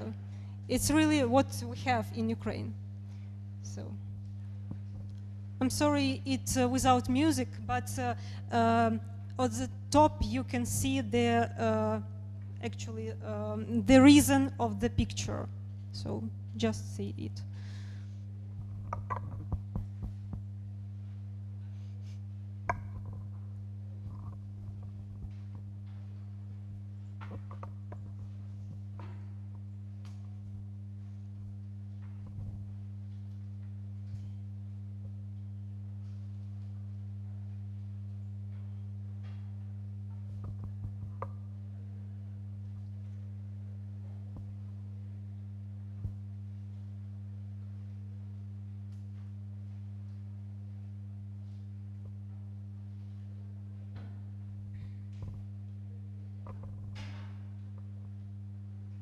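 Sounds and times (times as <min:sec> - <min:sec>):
low electrical hum: 0:00.0 - 0:59.0
faint knocks and clicks: 0:18.5 - 0:20.5, 0:27.2 - 0:30.4, 0:38.5 - 0:41.4, 0:56.4 - 0:58.2.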